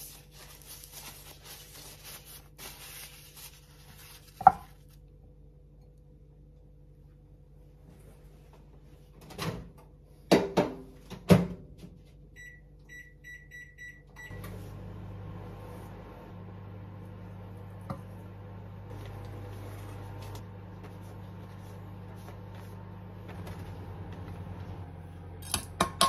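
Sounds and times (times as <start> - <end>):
microwave humming: 8.5 - 26.0.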